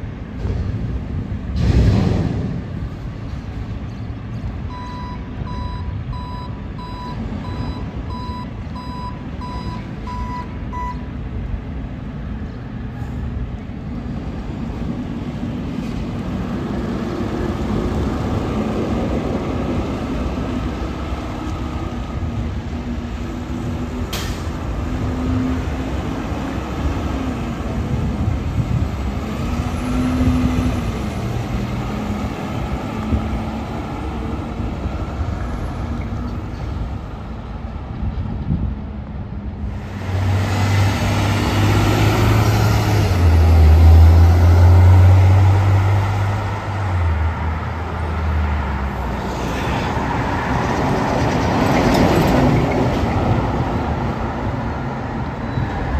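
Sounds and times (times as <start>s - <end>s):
diesel truck engine: 0.0s - 55.9s
truck back-up alarm beeping: 4.7s - 11.1s.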